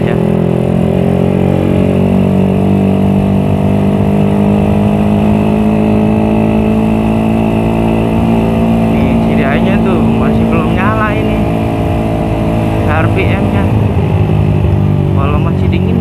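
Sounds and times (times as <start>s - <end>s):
motorcycle engine cruising: 0.0s - 16.0s.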